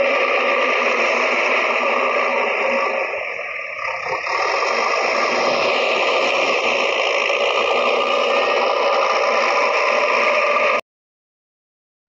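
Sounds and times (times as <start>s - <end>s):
toy wheels rolling over concrete: 3.8s - 10.8s.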